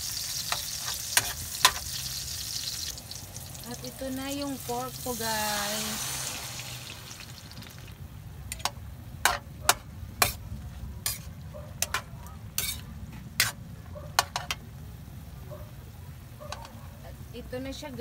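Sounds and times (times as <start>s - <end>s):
pork frying faintly: 0.0s - 18.0s
spatula scraping a wok: 0.2s - 2.0s, 8.5s - 13.6s.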